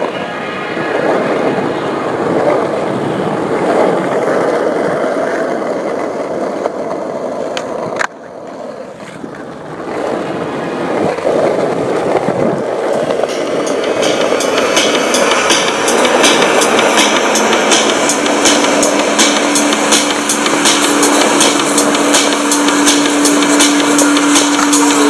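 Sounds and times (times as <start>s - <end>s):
skateboard wheels rolling on asphalt: 0.0s - 25.0s.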